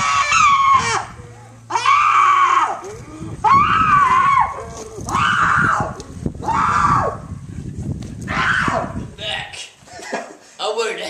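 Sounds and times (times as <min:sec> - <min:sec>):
young man screaming: 0:00.0 - 0:02.8, 0:03.4 - 0:07.2, 0:08.3 - 0:09.0.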